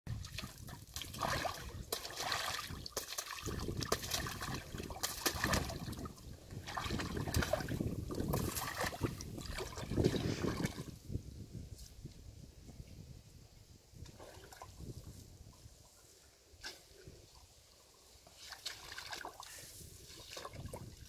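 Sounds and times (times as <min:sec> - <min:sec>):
mud sloshing and splattering: 0:00.1 - 0:11.0, 0:18.2 - 0:21.0.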